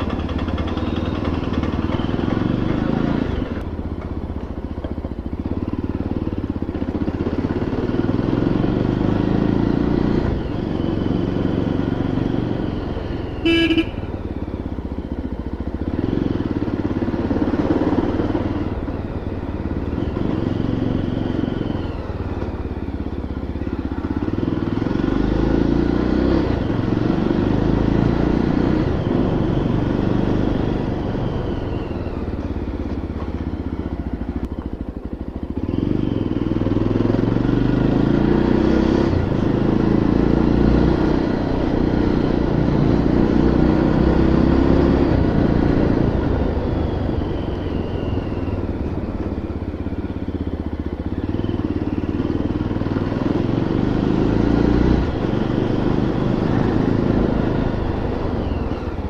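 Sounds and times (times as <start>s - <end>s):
motorcycle engine running: 0.0s - 59.0s
horn toot: 13.4s - 14.1s.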